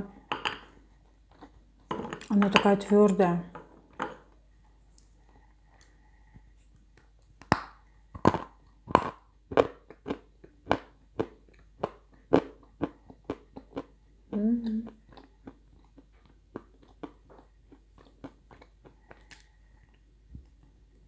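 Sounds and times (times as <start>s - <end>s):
crunching and chewing clay: 6.8s - 20.8s.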